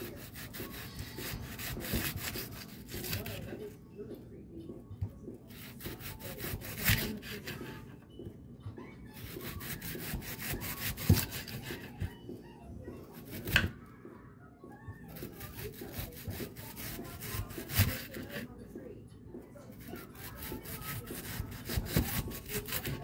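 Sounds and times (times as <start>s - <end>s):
knife slicing onion: 0.0s - 3.6s, 5.5s - 7.9s, 9.2s - 12.2s, 13.1s - 13.8s, 15.1s - 18.5s, 19.8s - 23.0s.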